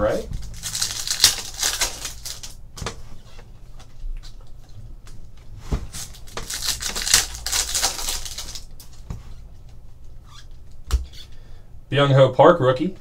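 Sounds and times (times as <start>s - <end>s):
foil wrapper tearing and crinkling: 0.4s - 2.6s, 5.9s - 9.0s.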